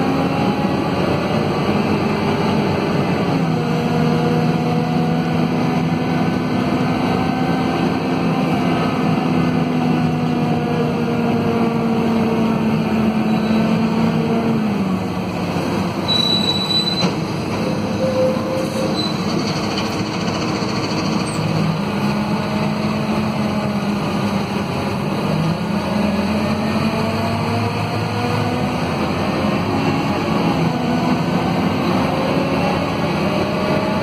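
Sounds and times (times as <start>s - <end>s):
bus diesel engine: 0.0s - 34.0s
brief high squeal: 13.3s - 13.7s, 16.0s - 19.6s.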